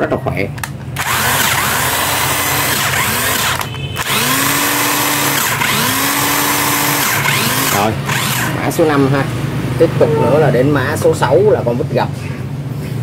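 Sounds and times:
impact wrench motor spinning: 1.0 - 8.7.

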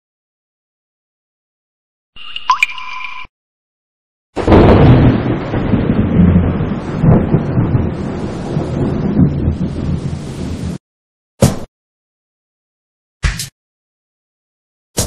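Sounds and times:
thunder rumbling: 4.4 - 10.8.

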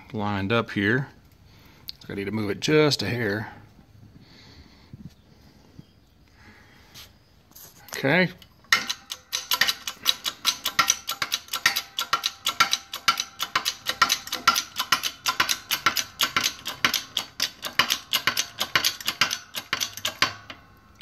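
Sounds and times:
hydraulic pump clicking: 8.4 - 20.6.

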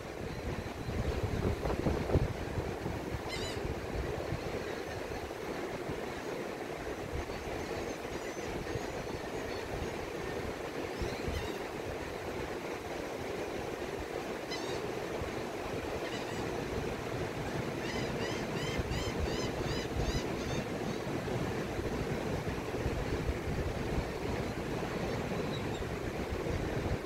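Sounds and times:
wind gusting on microphone: 0.0 - 27.0
bird calling: 3.3 - 3.7, 14.5 - 14.9, 16.0 - 16.6, 17.4 - 21.1.

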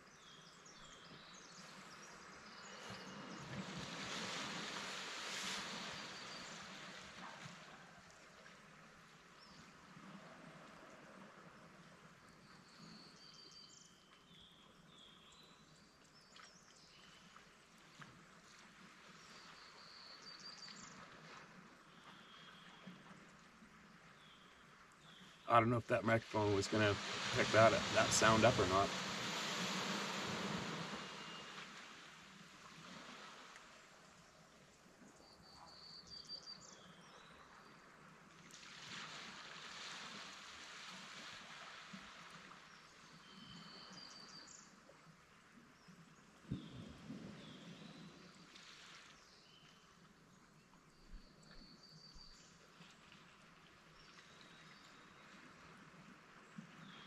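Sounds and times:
outdoor background hiss: 24.2 - 33.5.

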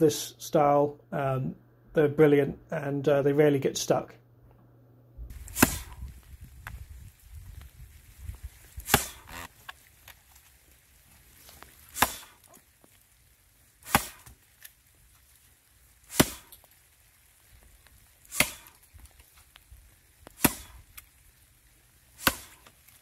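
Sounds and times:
axe chopping into log: 5.5 - 6.1, 8.8 - 9.5, 11.9 - 12.4, 13.8 - 14.4, 16.1 - 16.6, 18.3 - 18.8, 20.3 - 20.8, 22.2 - 22.7.

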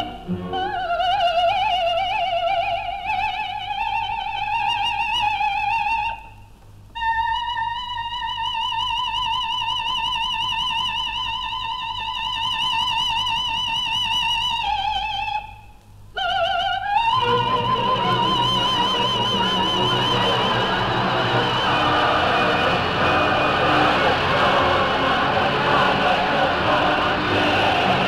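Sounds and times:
operatic soprano singing: 0.0 - 6.2, 16.2 - 28.0
orchestra playing: 17.2 - 28.0.

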